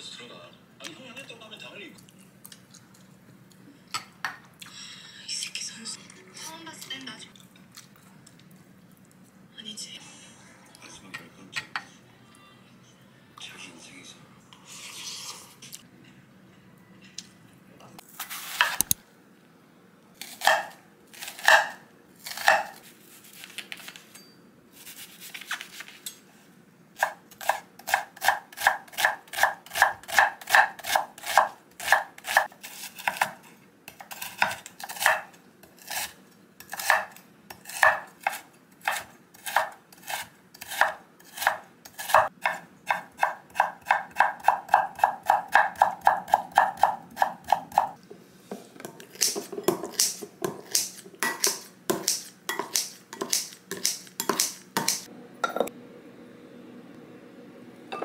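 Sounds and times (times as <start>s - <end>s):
knife chopping on wooden board: 20.4s - 22.8s, 27.0s - 33.4s, 36.7s - 47.9s, 48.9s - 55.7s.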